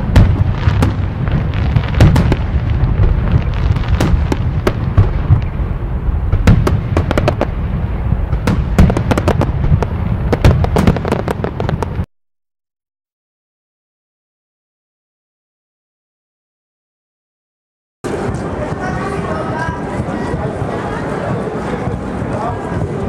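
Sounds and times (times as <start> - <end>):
fireworks bursting with sharp bangs: 0.0 - 12.1
low rumble: 0.0 - 12.1.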